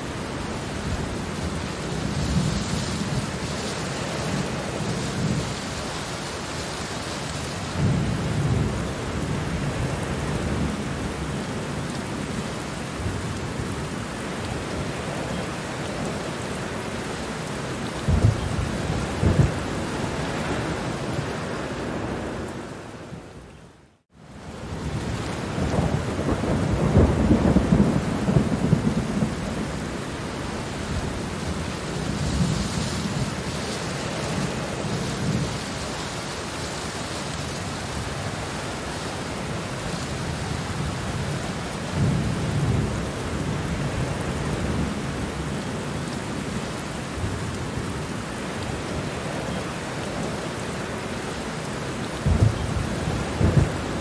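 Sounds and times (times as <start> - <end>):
steady rain falling: 0.0 - 54.0
thunder rumbling: 17.9 - 23.3, 24.6 - 35.9, 52.2 - 54.0.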